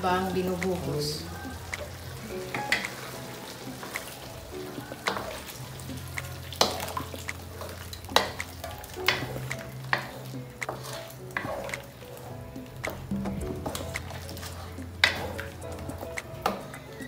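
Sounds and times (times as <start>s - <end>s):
meat sizzling in a wok: 0.0s - 17.0s
spatula scraping a wok: 6.5s - 12.3s, 13.6s - 16.6s.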